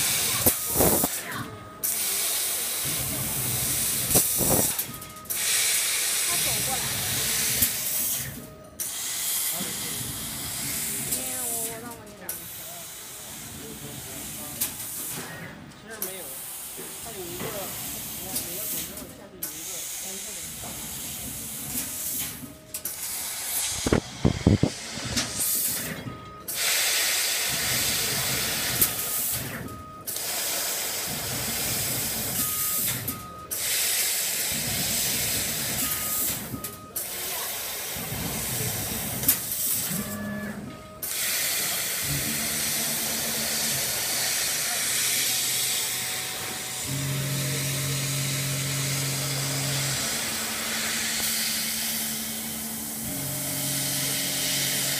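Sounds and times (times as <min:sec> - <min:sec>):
laser cutter gas hiss: 0:00.0 - 0:54.9.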